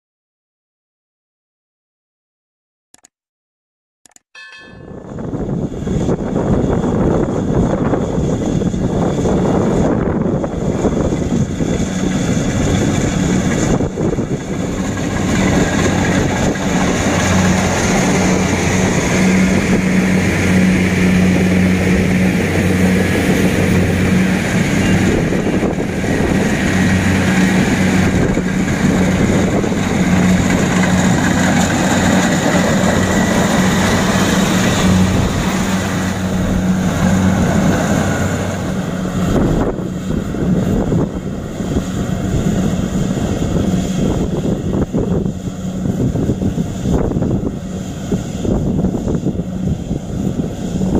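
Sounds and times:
diesel engine humming: 4.6 - 50.9
cutting and threshing machinery: 4.7 - 50.9.

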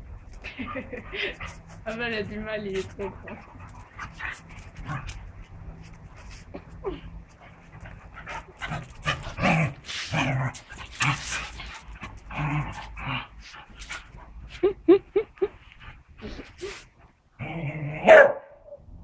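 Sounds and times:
dogs growling: 2.8 - 5.4, 7.2 - 14.2.

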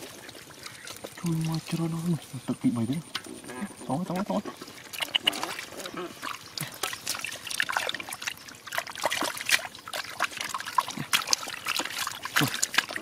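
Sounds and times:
hands splashing in muddy water: 4.6 - 13.0.

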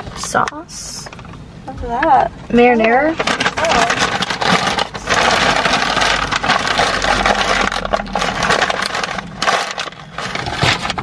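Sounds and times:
paper bag crumpling: 3.1 - 11.0.

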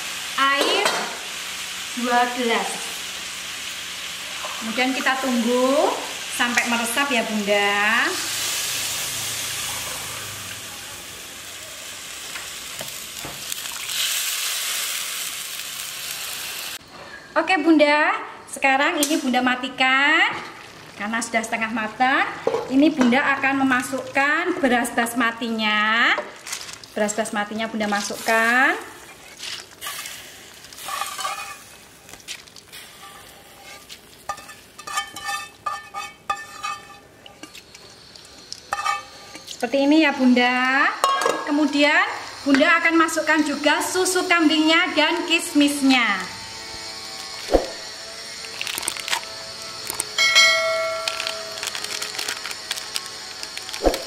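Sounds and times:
food sizzling in oil: 0.0 - 16.8, 19.0 - 54.0
water poured into hot pan: 13.5 - 16.8
spatula scraping metal pan: 30.8 - 31.7, 33.0 - 37.6, 38.7 - 39.5.

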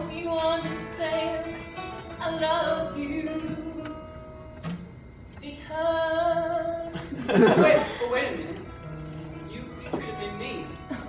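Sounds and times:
woman singing long notes: 0.0 - 4.2, 5.4 - 7.0.

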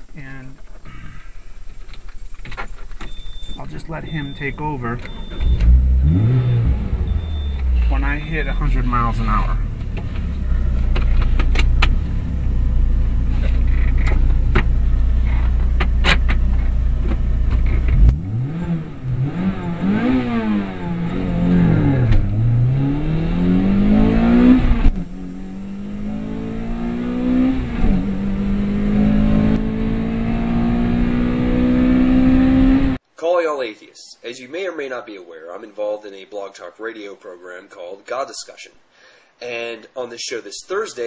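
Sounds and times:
road rumble: 0.0 - 33.2
car engine accelerating: 3.5 - 33.0.

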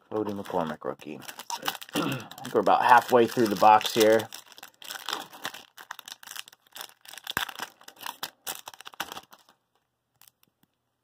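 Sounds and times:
foil wrapper tearing and crinkling: 0.2 - 9.6.

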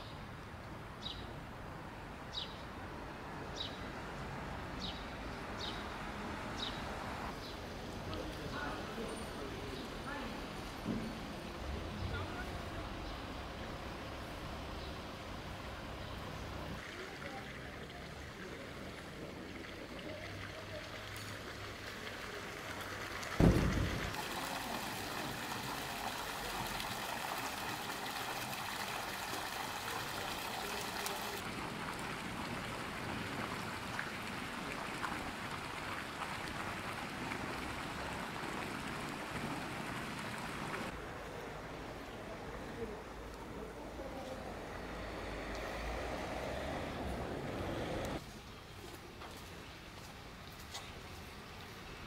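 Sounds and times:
fountain jets splashing into basin: 7.5 - 48.2
sharp low thump: 23.4 - 24.2.

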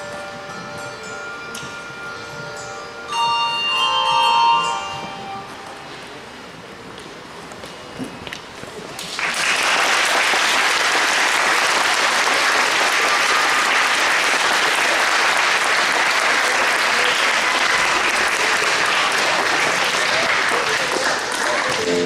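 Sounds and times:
audience applauding: 9.0 - 22.0.

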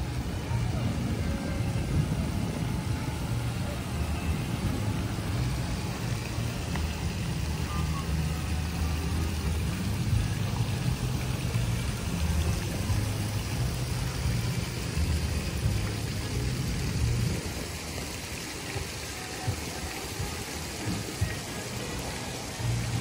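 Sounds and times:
low rumble: 0.0 - 17.5
fountain jets splashing: 0.0 - 23.0.

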